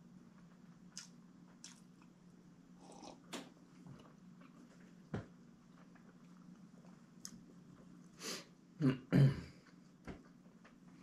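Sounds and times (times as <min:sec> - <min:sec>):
low steady hum: 0:00.0 - 0:11.0
soft eating clicks and mouth noises: 0:00.2 - 0:08.2.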